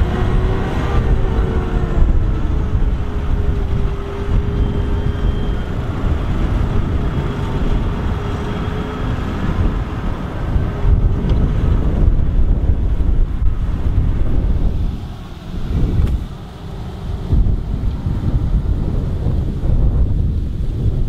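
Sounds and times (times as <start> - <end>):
steady whine: 0.0 - 21.0
tractor diesel engine running hard: 0.0 - 21.0.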